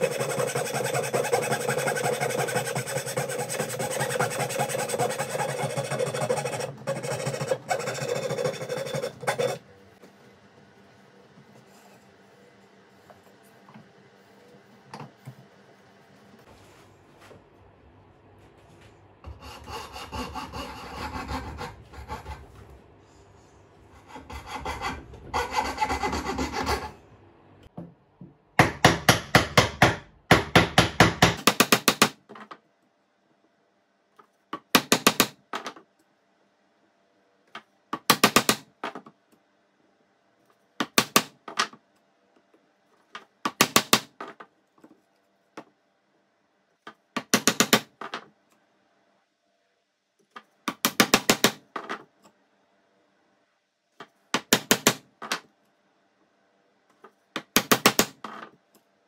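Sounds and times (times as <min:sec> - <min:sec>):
hand saw cutting wood: 0:00.0 - 0:09.6, 0:19.3 - 0:22.4, 0:24.0 - 0:26.9.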